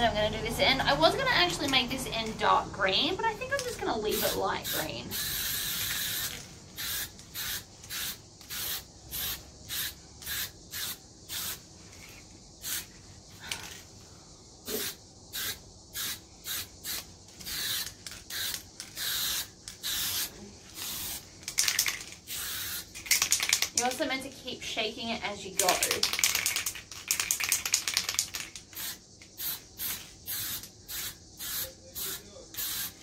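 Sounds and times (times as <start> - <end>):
spray can rattle: 3.5 - 12.9, 14.7 - 24.1, 25.6 - 33.0
spray paint hissing: 3.6 - 13.0, 14.6 - 24.0, 25.6 - 33.0.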